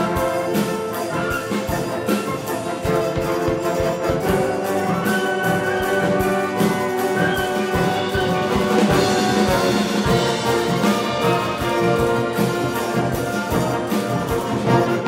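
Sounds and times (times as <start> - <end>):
brass holding chords: 0.0 - 15.0.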